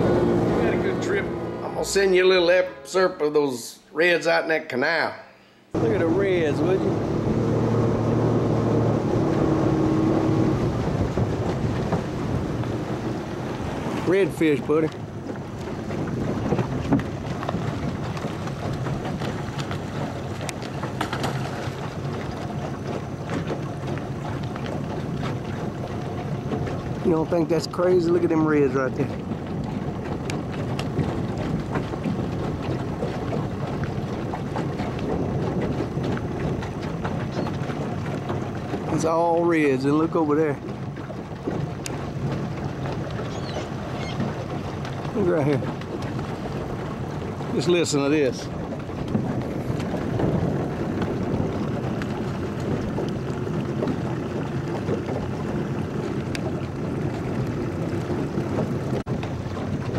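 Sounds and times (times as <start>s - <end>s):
low wind rumble: 0.0s - 3.1s, 5.7s - 59.9s
water lapping and splashing: 0.0s - 3.4s, 5.8s - 59.9s
fish splashing water: 6.3s - 27.5s.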